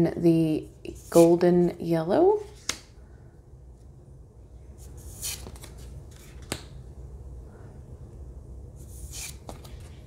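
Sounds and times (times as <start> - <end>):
steady low hum: 0.0 - 10.0
cards rustling: 4.8 - 6.8, 8.9 - 10.0.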